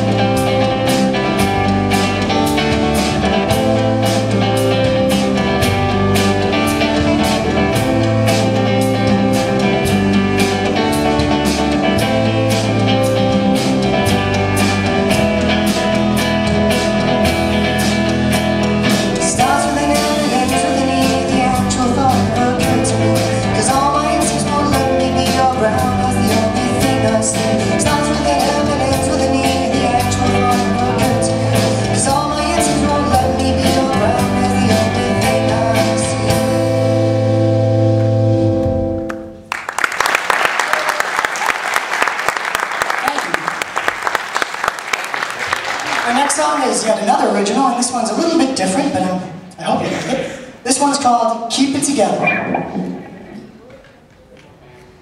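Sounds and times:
drum kit beat: 0.0 - 39.5
electric bass: 0.0 - 39.5
electric guitar: 0.0 - 39.8, 51.8 - 55.0
person singing lead vocal: 18.8 - 37.0.

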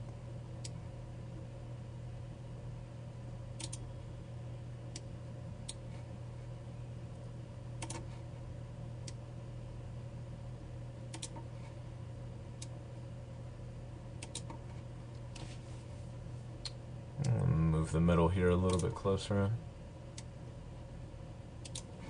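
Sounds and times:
low electrical hum: 0.0 - 22.0
keyboard and mouse clicks: 3.6 - 3.8, 7.8 - 8.1, 11.1 - 11.4, 14.2 - 14.6, 21.6 - 21.9.

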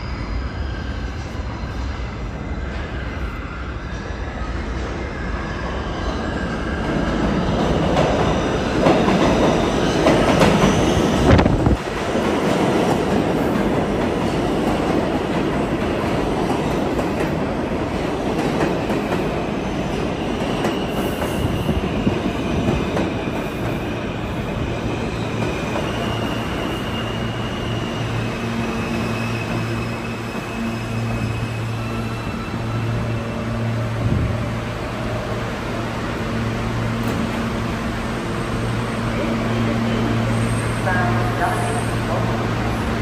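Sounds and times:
subway train wheel and rail rumble: 0.0 - 43.0
high wheel squeal: 24.9 - 33.9.

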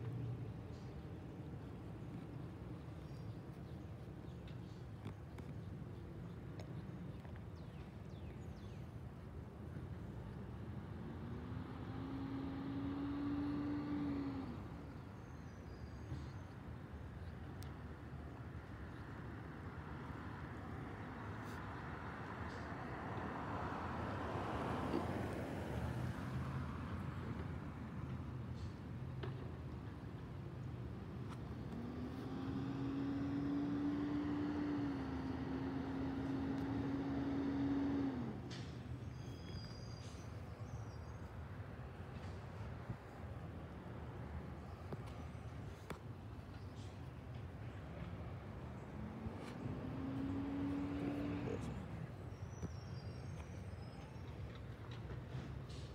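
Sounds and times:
vehicle engine hum: 0.0 - 55.9
vehicle engine passing: 10.6 - 15.1, 30.7 - 39.4, 44.0 - 53.7.

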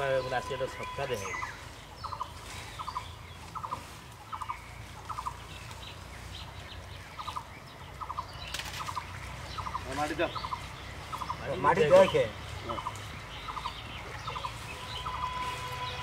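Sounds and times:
animal rattling call: 8.0 - 16.0
brief rustle: 8.4 - 9.0.

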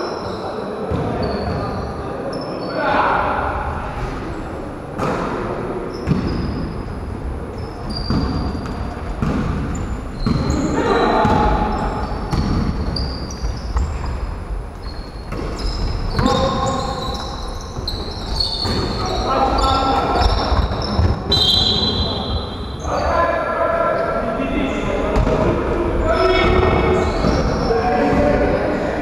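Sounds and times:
sneakers squeaking: 0.0 - 29.0
basketball bouncing on wooden floor: 11.2 - 14.2.

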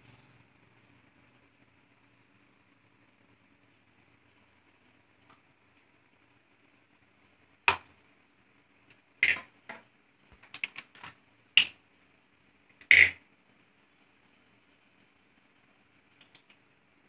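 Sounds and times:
rapid small clicks: 8.8 - 11.8, 16.0 - 16.7.

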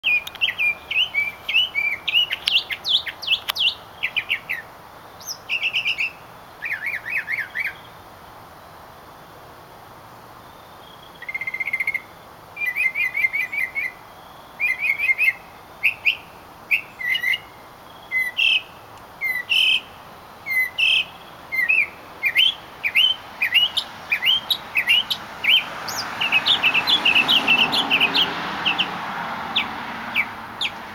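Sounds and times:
mockingbird singing: 0.0 - 7.9, 11.1 - 30.9
broad rushing noise: 21.2 - 30.9.

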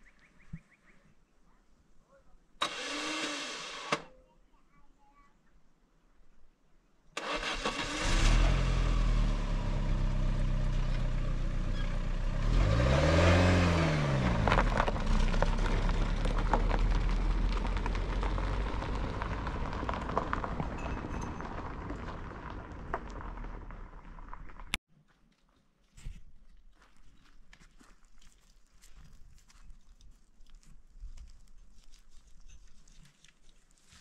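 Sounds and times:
car engine starting and revving: 2.6 - 4.0, 7.2 - 20.8
tyres crackling over gravel: 14.0 - 25.5, 26.5 - 34.0.

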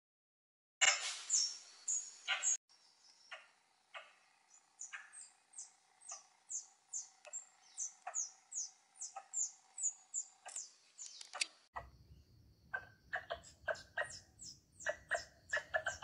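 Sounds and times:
small animal chirping: 3.3 - 12.0, 12.7 - 16.0.

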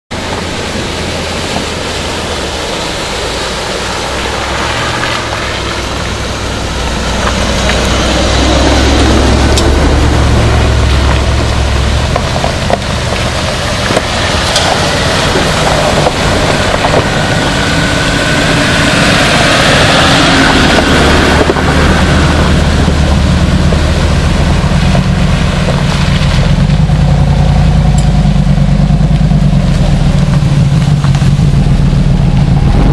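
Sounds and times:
truck engine running at low speed: 0.1 - 32.9
water splashing: 0.1 - 32.9.

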